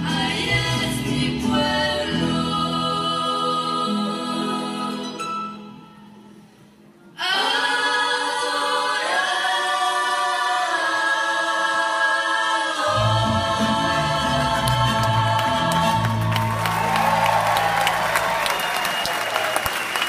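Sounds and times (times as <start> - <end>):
bass strings and strummed guitars: 0.0 - 4.1, 12.9 - 18.5
mariachi singing: 0.0 - 5.8, 7.2 - 17.2.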